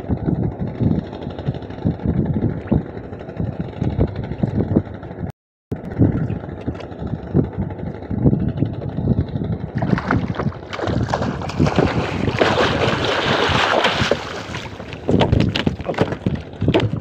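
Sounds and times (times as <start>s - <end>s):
fish thrashing and splashing water: 9.8s - 17.0s.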